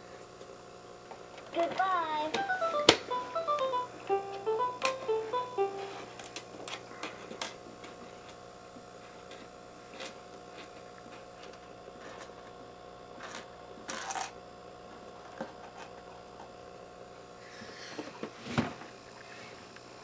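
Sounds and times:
steady hum: 0:01.4 - 0:06.5.

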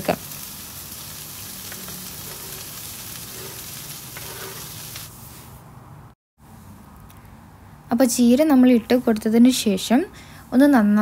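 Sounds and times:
spinach frying in hot oil: 0:00.0 - 0:05.3.

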